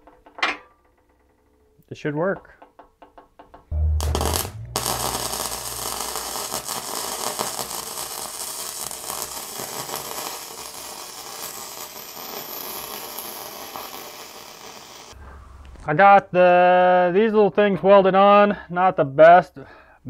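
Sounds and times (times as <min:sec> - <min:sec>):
welder arc crackling: 0:03.7 - 0:15.2.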